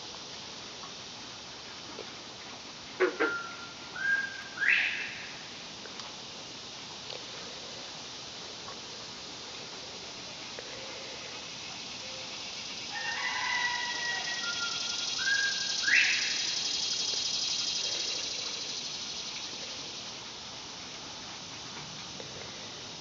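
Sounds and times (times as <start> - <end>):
high cicada buzz: 0.0 - 23.0
quail whistled call: 3.2 - 5.2, 13.0 - 16.6
rooster crowing: 12.8 - 16.7.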